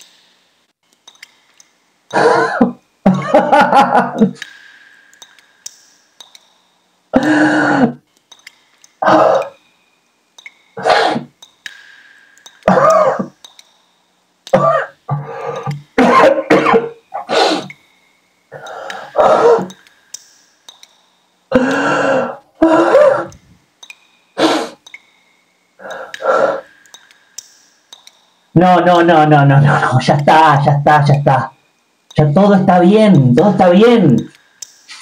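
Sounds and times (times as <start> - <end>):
man sobbing and gasping: 7.2 - 8.0, 21.5 - 23.3.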